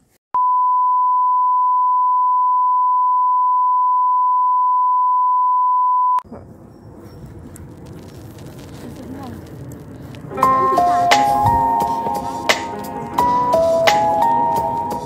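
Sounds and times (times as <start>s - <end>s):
outdoor background noise: 6.2s - 15.0s.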